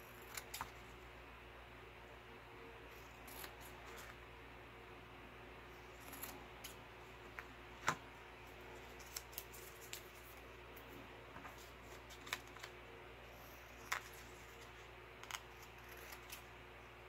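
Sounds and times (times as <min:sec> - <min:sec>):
air conditioner hum: 0:00.0 - 0:17.0
scissors snipping card: 0:15.2 - 0:16.4.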